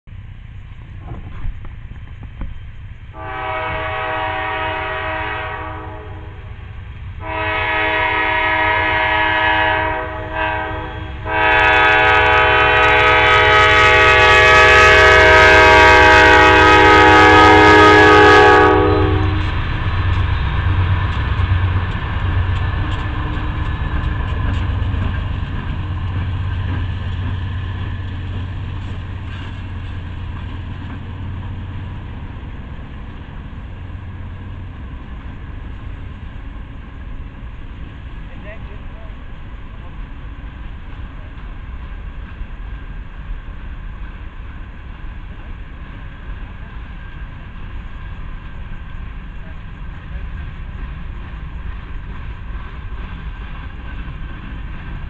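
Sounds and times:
freight train rolling over rails: 0.1 - 55.0
locomotive air horn blasts: 3.2 - 6.6, 7.2 - 19.6.

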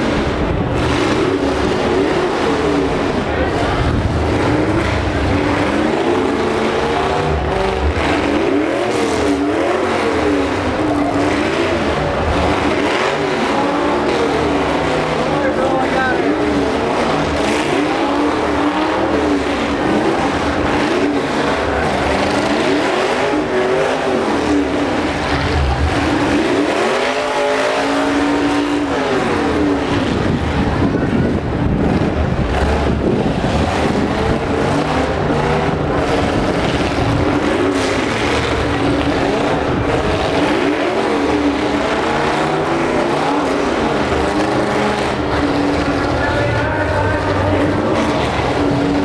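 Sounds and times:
truck engines revving: 0.0 - 49.0.

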